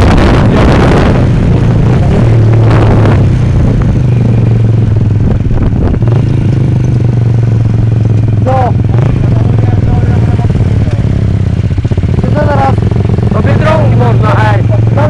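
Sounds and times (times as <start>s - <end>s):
wind on microphone: 0.0s - 7.9s
motorcycle engines running low: 0.0s - 15.0s.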